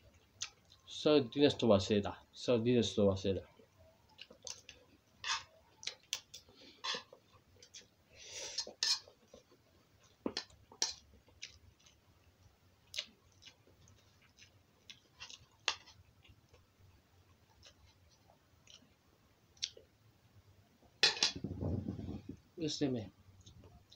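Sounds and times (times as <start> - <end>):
metal utensil scraping a bowl: 8.5 - 9.1.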